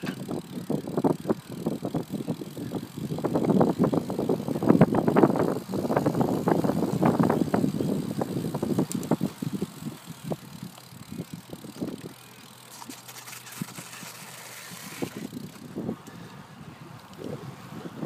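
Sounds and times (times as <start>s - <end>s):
bicycle knocks and rattles: 0.0s - 16.1s
tyre and wind hiss: 0.0s - 18.0s.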